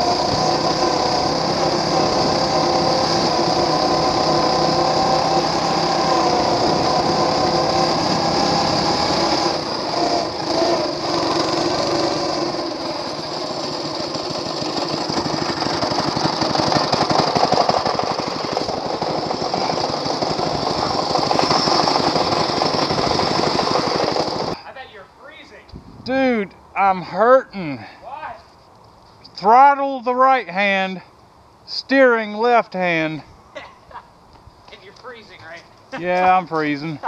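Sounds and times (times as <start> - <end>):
small gas engine running: 0.0 - 24.6, 35.9 - 37.0.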